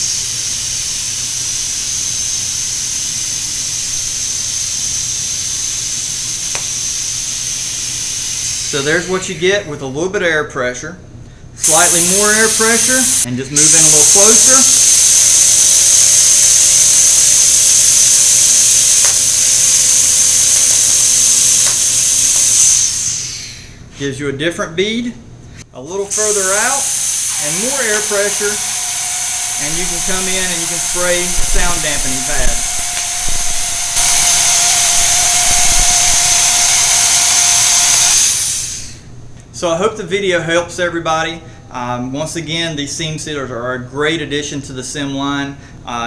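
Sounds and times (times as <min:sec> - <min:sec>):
compressed air hissing from nozzle: 0:00.0 - 0:09.6, 0:11.6 - 0:23.9, 0:25.6 - 0:39.1
high steady whistle: 0:13.6 - 0:23.6, 0:26.2 - 0:39.0.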